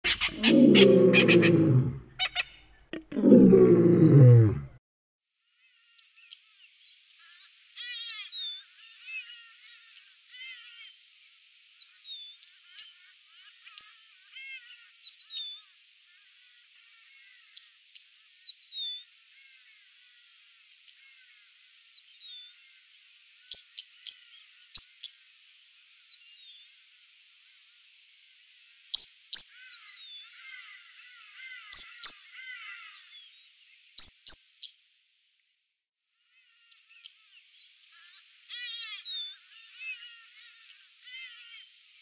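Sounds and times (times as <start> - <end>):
rapid bird chatter: 0.0 - 1.5
plover whistled calls: 0.0 - 3.0.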